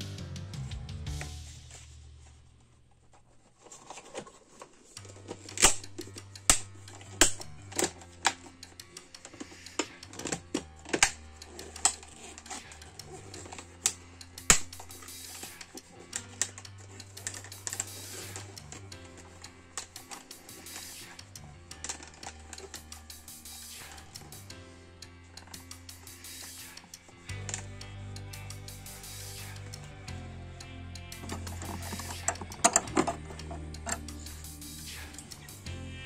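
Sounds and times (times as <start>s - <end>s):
background music with bass line: 0.0s - 2.6s, 5.0s - 36.0s
plastic clicks and knocks: 31.2s - 34.1s.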